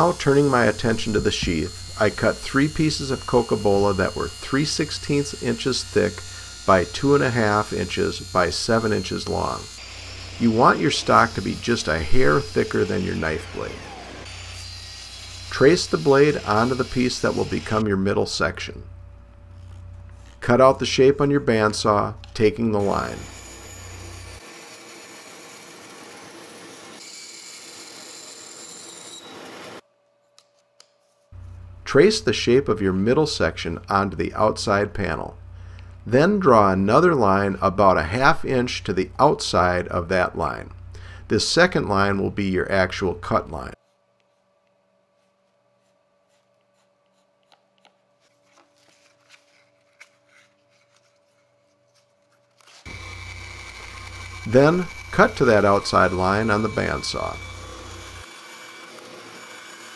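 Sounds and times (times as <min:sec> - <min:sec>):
bandsaw cutting wood: 0:00.0 - 0:17.9, 0:22.8 - 0:29.8, 0:52.6 - 0:59.9
pencil scratching on wood: 0:43.8 - 0:48.0.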